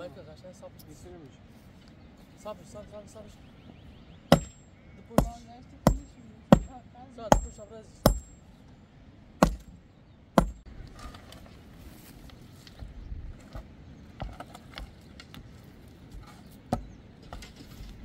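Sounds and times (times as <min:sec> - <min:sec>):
metal bar pounding soil and stones: 0:04.3 - 0:08.4, 0:09.4 - 0:09.8, 0:10.4 - 0:11.2.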